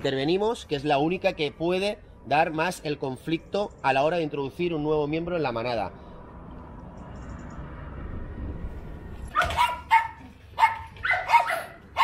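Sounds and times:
puppies yapping: 0:09.3 - 0:12.0.

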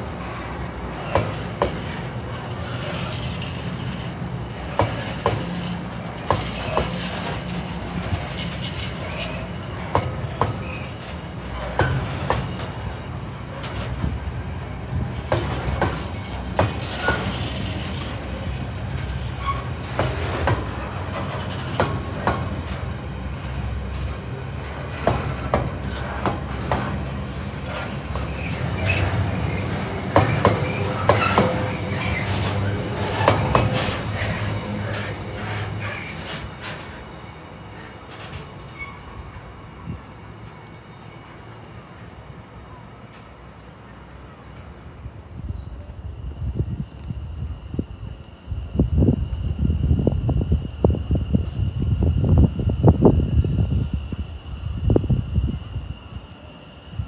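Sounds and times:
wheels clicking over rail joints: 0:00.0 - 0:39.5
freight train rumbling past: 0:00.0 - 0:57.0.

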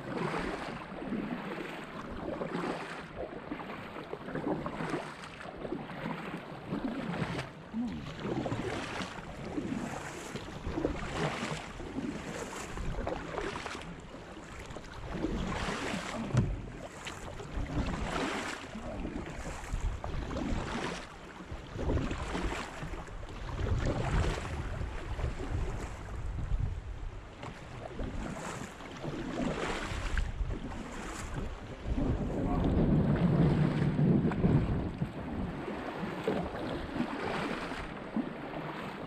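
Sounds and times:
paddle strokes splashing: 0:00.0 - 0:39.0
wind buffeting microphone: 0:21.5 - 0:38.0.

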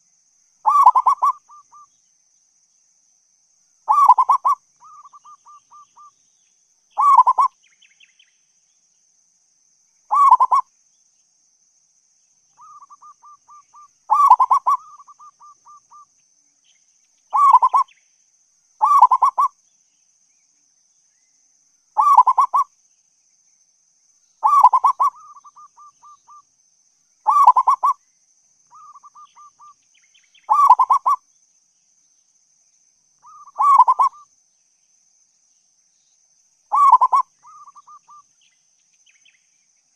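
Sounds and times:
dove cooing: 0:00.7 - 0:01.6, 0:03.9 - 0:05.8, 0:07.0 - 0:07.5, 0:10.1 - 0:10.6, 0:14.1 - 0:16.0, 0:17.4 - 0:17.9, 0:18.8 - 0:19.5, 0:22.0 - 0:22.6, 0:24.4 - 0:26.2, 0:27.3 - 0:28.0, 0:30.5 - 0:31.2, 0:33.3 - 0:34.2, 0:36.7 - 0:38.0.

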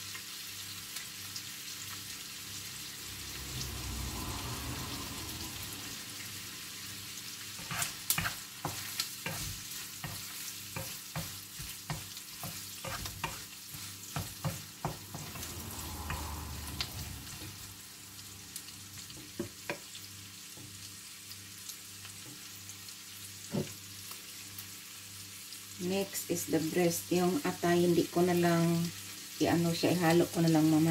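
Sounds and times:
onion and garlic sizzling in oil: 0:00.0 - 0:30.9
spatula scraping a wok: 0:06.8 - 0:17.7.

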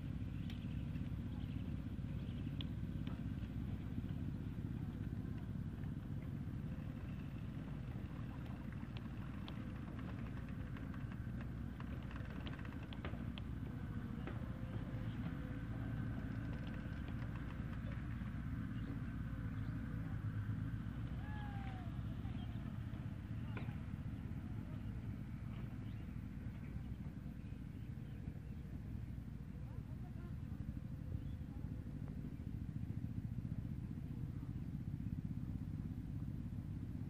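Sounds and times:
low outdoor rumble: 0:00.0 - 0:37.0
faint clicks: 0:05.3 - 0:19.0.

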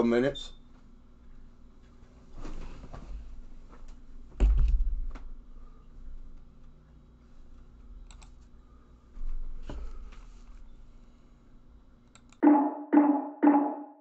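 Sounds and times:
ringing percussive hits: 0:12.4 - 0:14.0.

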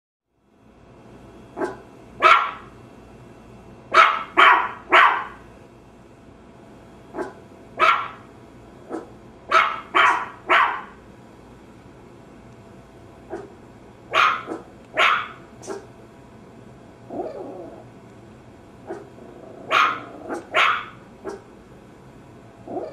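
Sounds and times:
small dog barking: 0:01.6 - 0:02.7, 0:03.9 - 0:05.4, 0:07.2 - 0:08.3, 0:08.9 - 0:11.0, 0:13.3 - 0:15.9, 0:18.9 - 0:19.1, 0:19.7 - 0:21.5.

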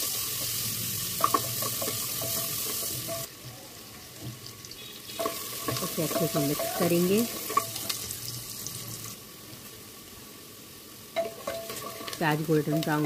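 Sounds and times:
onions sizzling in hot oil: 0:00.0 - 0:13.0
wooden spatula knocking pot: 0:12.6 - 0:13.0.

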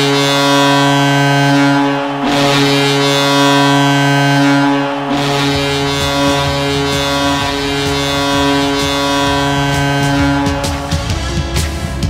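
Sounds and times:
goal horn blasts: 0:00.0 - 0:11.8
drum beat: 0:05.3 - 0:12.0.

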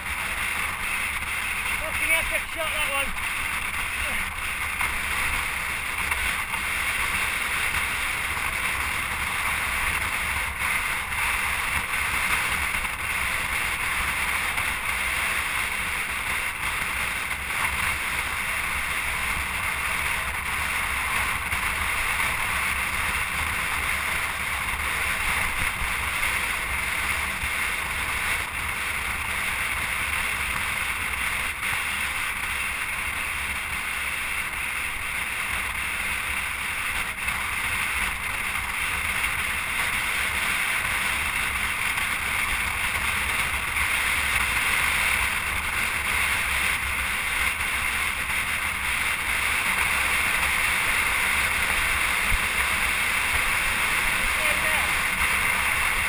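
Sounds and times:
road noise rumble: 0:00.0 - 0:56.0.

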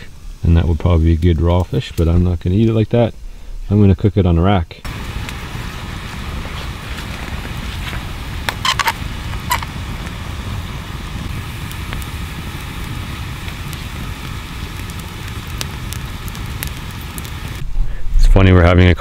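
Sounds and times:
campfire crackling and popping: 0:04.8 - 0:17.6
wind rumble on microphone: 0:04.9 - 0:18.6.

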